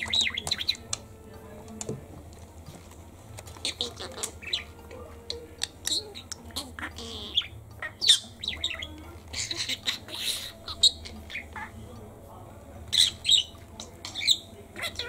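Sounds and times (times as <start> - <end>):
budgerigar chirping and squawking: 0.0 - 1.1, 3.5 - 11.9, 12.8 - 15.0.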